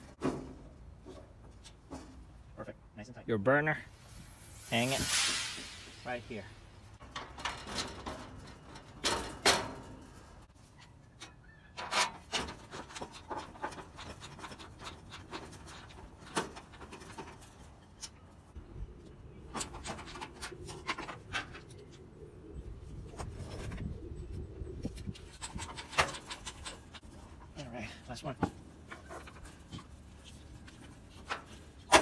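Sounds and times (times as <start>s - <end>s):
low rumble: 3.9s - 7.0s
sheet metal parts clicking and knocking: 25.1s - 27.5s.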